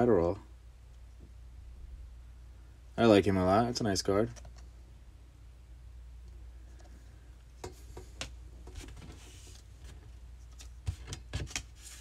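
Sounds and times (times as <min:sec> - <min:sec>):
cards sliding rustle: 0:08.2 - 0:12.0.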